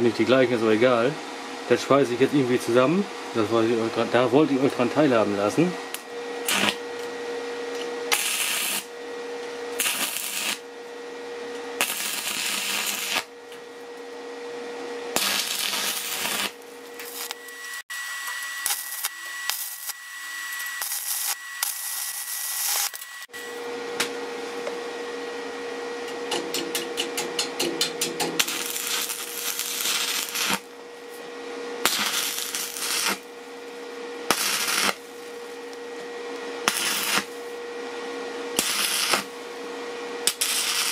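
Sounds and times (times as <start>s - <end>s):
steady hum: 0.0s - 40.9s
welding arc crackling and hissing: 5.9s - 6.8s, 8.1s - 9.0s, 9.7s - 10.7s, 11.8s - 13.3s, 15.1s - 23.3s, 28.2s - 30.7s, 31.8s - 33.3s, 34.3s - 35.8s, 36.6s - 37.5s, 38.6s - 39.4s, 40.2s - 40.9s.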